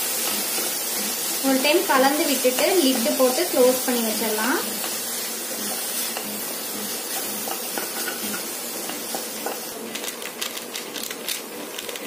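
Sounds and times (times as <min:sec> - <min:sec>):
vegetables sizzling in a pan: 0:00.0 - 0:12.0.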